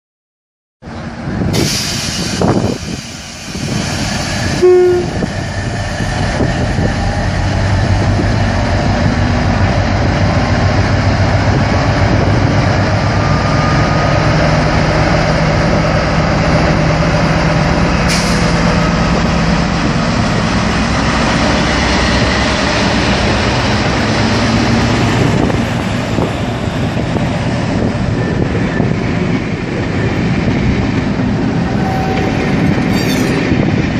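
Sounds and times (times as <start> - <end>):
diesel locomotive engine drone: 0.8 - 33.9
locomotive horn blast: 4.5 - 5.3.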